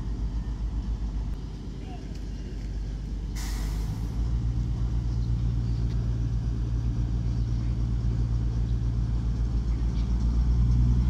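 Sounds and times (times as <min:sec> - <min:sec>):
train diesel engines humming: 0:00.0 - 0:11.0
short hiss: 0:03.4 - 0:04.1.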